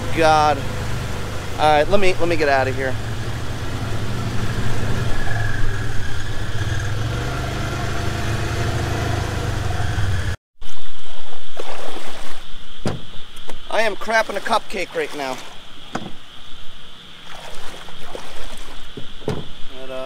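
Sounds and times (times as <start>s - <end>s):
vehicle engine running: 0.0s - 10.4s.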